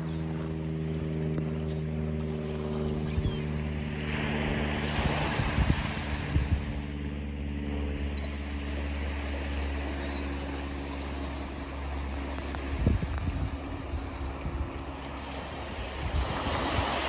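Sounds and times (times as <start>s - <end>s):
low engine-like hum: 0.0s - 17.0s
faint bird chirps: 3.1s - 3.5s, 8.2s - 8.5s, 10.0s - 10.4s
wind thumping on microphone: 5.0s - 6.8s, 12.5s - 14.6s
waves washing onto pebbles: 12.1s - 17.0s.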